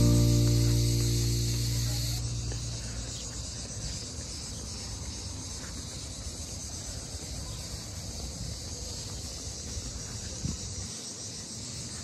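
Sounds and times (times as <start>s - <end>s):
low uneven rumble: 0.0s - 3.4s
cicadas droning: 0.0s - 12.0s.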